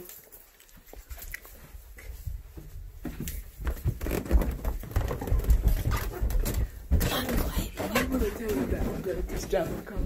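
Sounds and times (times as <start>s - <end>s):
thuds of steps on stairs: 2.6s - 10.0s.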